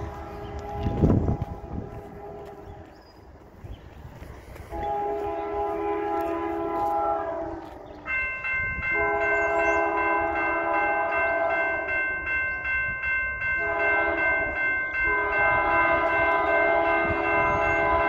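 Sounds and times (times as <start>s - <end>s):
locomotive air horn blasts: 0.0s - 2.9s, 4.7s - 8.2s, 8.8s - 12.1s, 13.6s - 18.0s
crossing warning bell ringing: 4.8s - 18.0s.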